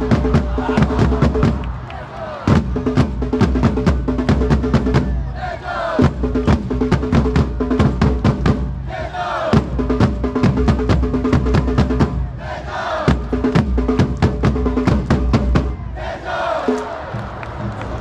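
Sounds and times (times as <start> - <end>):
drums beaten with mallets: 0.0 - 1.6, 2.5 - 5.3, 6.0 - 8.8, 9.5 - 12.3, 13.1 - 15.8
stadium crowd chanting: 0.0 - 3.0, 3.6 - 6.5, 8.1 - 9.8, 11.4 - 13.7, 14.6 - 18.0.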